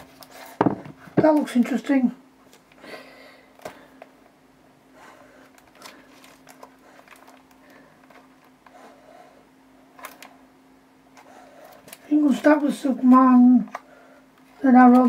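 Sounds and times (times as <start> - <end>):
faint steady hum: 0.0 - 15.0
paper rustling: 5.5 - 8.3.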